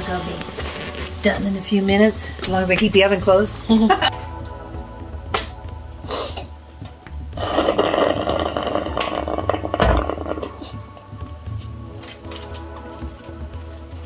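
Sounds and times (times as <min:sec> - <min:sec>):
person slurping a drink: 0:07.4 - 0:10.6.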